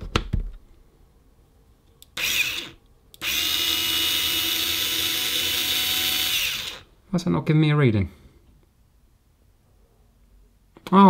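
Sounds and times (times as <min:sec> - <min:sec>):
electric screwdriver motor whine: 0:02.2 - 0:06.9.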